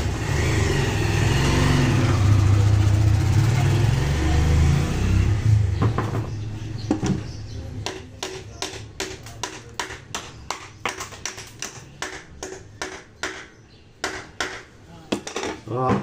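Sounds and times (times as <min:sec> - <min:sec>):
vehicle engine rumble: 0:00.0 - 0:07.9.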